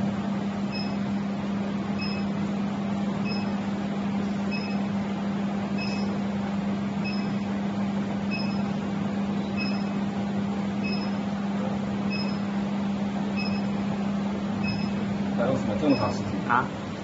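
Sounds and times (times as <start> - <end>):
induction heater humming: 0.0 - 17.0
short high beeps: 0.7 - 1.0, 2.0 - 2.3, 5.8 - 6.1, 8.3 - 8.7, 9.6 - 10.0, 10.8 - 11.2, 12.1 - 12.4, 14.6 - 15.0, 15.9 - 16.2.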